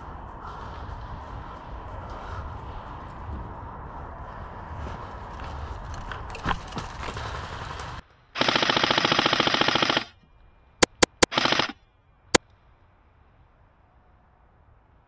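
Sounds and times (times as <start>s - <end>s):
airsoft rifle firing: 8.4s - 10.1s, 10.8s - 11.8s.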